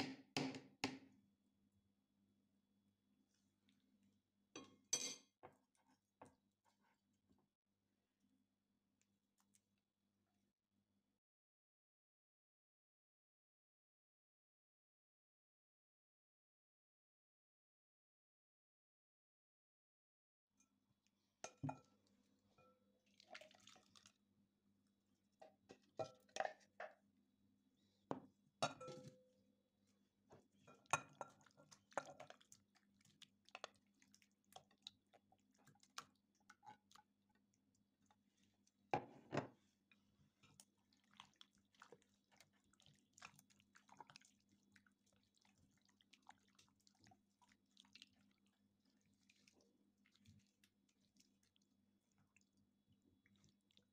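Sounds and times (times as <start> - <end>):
clinks of glass and plastic kitchenware: 4.6 - 5.6, 28.6 - 29.2
wet squelches of raw chicken: 21.0 - 26.8, 29.8 - 38.9, 39.7 - 53.9.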